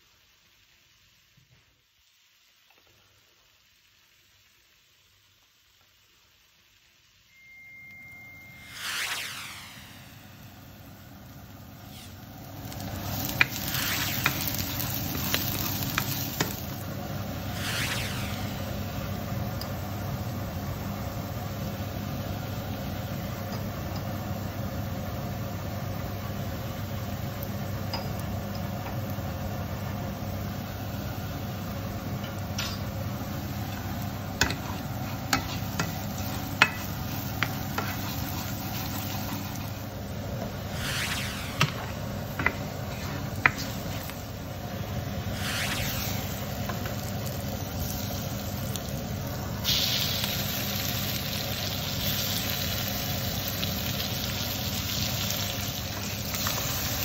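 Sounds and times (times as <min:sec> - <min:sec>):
onions sizzling in frying pan: 0:02.0 - 0:06.8, 0:10.8 - 0:40.8, 0:41.6 - 0:57.0
low hum: 0:07.3 - 0:20.0, 0:35.8 - 0:49.6.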